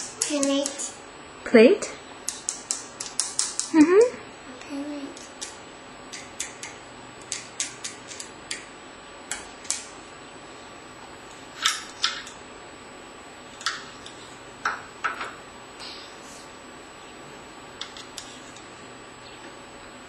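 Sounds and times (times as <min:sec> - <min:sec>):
plastic spoons clicking on cups: 0:02.3 - 0:03.8.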